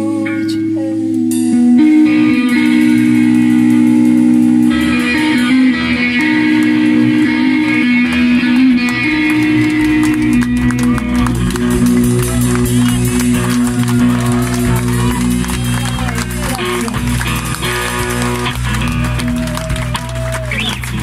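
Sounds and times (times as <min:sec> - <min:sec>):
electric guitar ringing chords: 0:00.0 - 0:21.0
low bass: 0:00.0 - 0:21.0
rock band playing: 0:01.0 - 0:21.0
hands clapping: 0:04.4 - 0:21.0.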